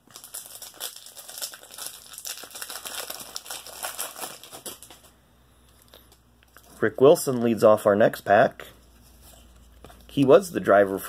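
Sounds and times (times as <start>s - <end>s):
foil wrapper tearing and crinkling: 0.0s - 5.1s.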